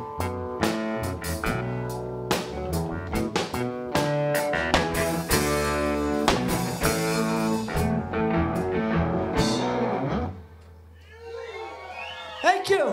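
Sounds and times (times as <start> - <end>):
drums: 0.0 - 11.0
electric guitars: 0.0 - 11.6.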